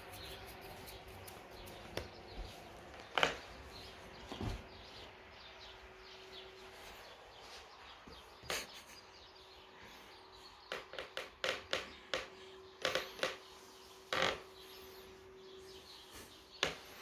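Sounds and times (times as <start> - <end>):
bedsheet rustling: 2.4 - 8.5.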